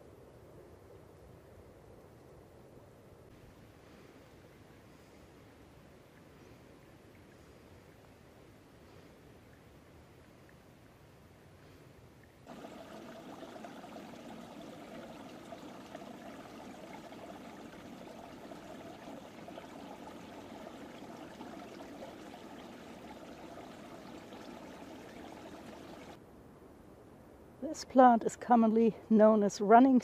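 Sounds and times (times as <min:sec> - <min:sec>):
stream trickling: 0:12.2 - 0:26.2.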